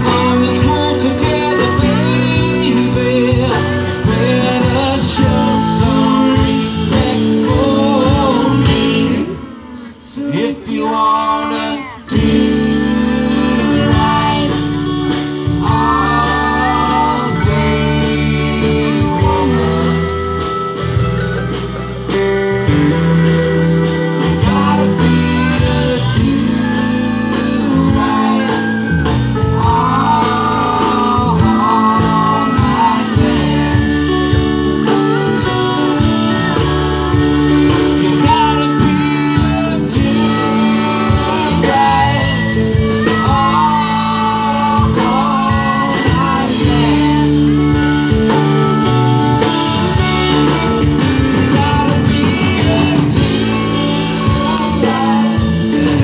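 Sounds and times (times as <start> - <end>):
live band with guitars: 0.0 - 56.0.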